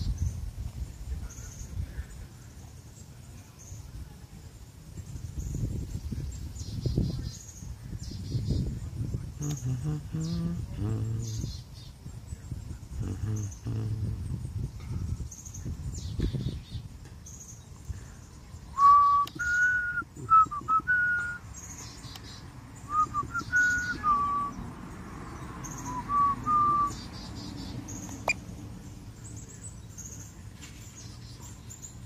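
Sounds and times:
person whistling a tune: 18.8s - 21.4s, 22.9s - 24.5s, 25.9s - 26.9s
faint bird chirps: 25.3s - 28.4s.

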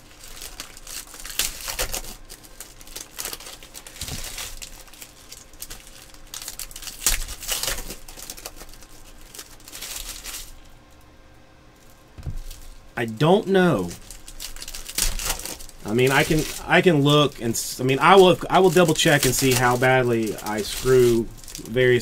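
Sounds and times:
wrappers crinkling and tearing: 0.0s - 11.1s, 11.8s - 22.0s
cards being handled: 15.0s - 22.0s.

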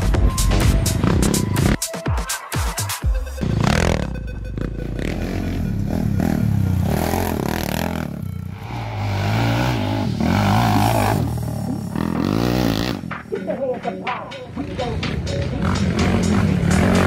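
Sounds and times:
quad engines revving: 3.4s - 13.4s, 14.7s - 17.0s.

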